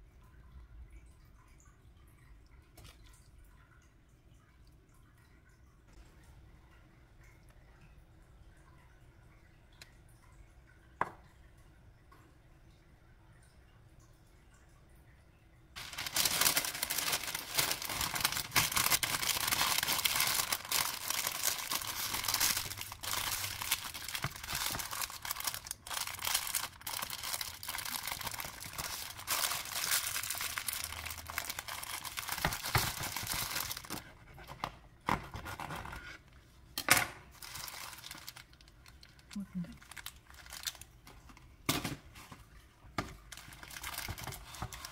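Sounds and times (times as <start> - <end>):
paper crinkling and rustling: 15.8 - 34.1, 37.4 - 41.4, 42.1 - 44.9.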